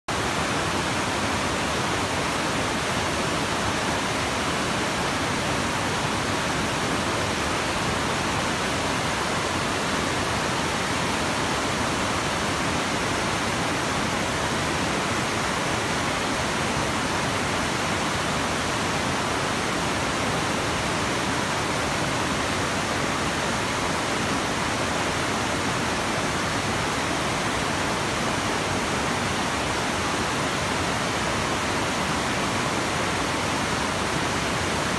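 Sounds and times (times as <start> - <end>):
water rushing over rock ledges: 0.1 - 34.9.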